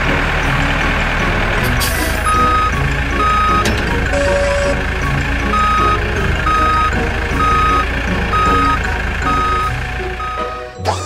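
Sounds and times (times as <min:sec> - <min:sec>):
diesel engine drone: 0:00.0 - 0:11.0
reversing alarm beeping: 0:02.2 - 0:10.8.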